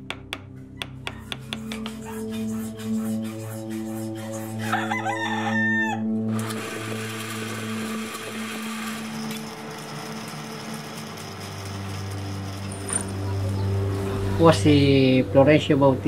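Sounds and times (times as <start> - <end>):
rooster crowing: 4.6 - 6.2.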